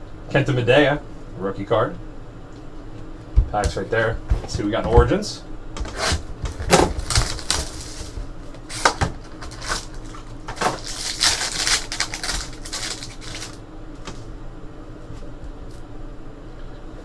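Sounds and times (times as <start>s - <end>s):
foil wrapper tearing and crinkling: 5.9s - 13.6s.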